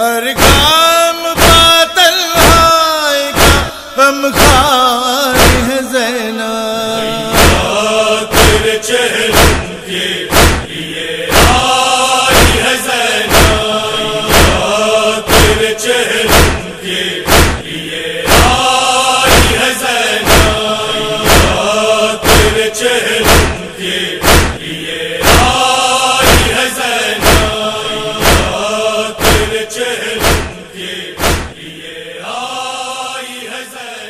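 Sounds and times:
group chanting: 0:00.0 - 0:34.0
palms striking chests: 0:03.4 - 0:03.8, 0:05.4 - 0:05.8, 0:24.2 - 0:24.6.

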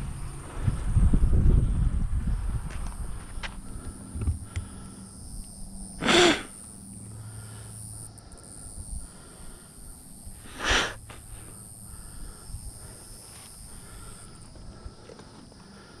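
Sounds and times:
faint steady hum: 0:00.0 - 0:16.0
sharp breaths: 0:03.0 - 0:05.3, 0:06.0 - 0:16.0.

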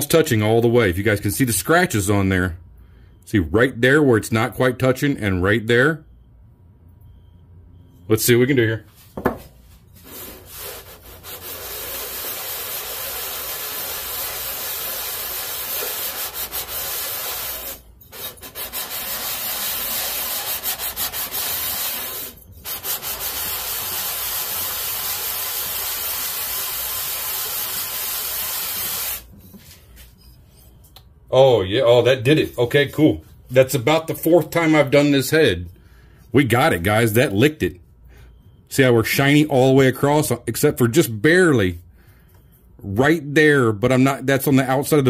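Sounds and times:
metal rubbed on sandpaper: 0:10.0 - 0:30.7.

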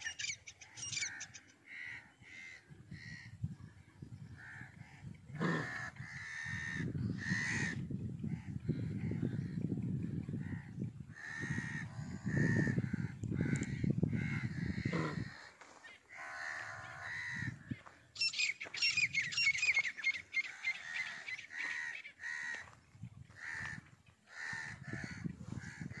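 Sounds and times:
harsh animal calls: 0:11.2 - 0:17.6.

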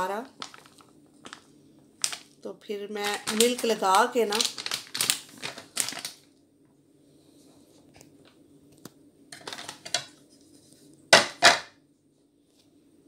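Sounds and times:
plastic packet rustling and crinkling: 0:00.0 - 0:06.4, 0:09.4 - 0:10.7
low steady hum: 0:00.0 - 0:13.0.

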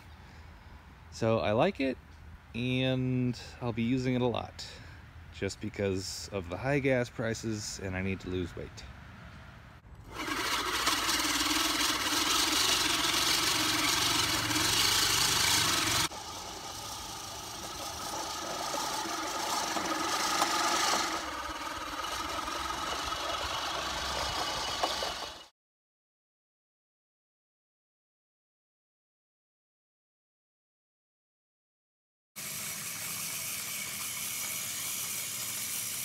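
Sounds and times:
reel lawnmower whirring: 0:09.9 - 0:25.5, 0:32.4 - 0:36.0.

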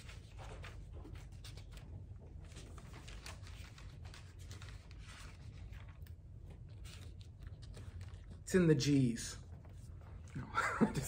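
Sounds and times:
thin paper pages rustling: 0:00.0 - 0:08.5
low room hum: 0:00.0 - 0:11.0.

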